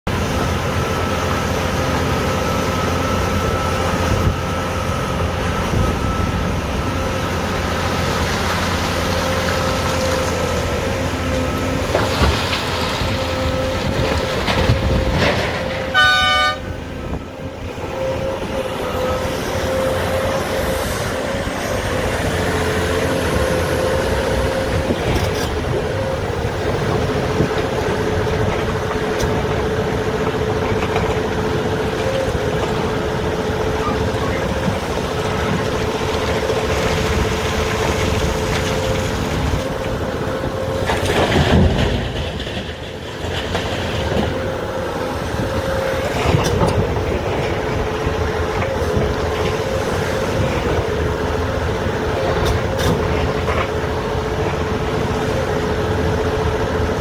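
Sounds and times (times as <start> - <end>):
excavator engine and hydraulics whine: 0.0 - 57.0
short horn blast: 15.8 - 16.8.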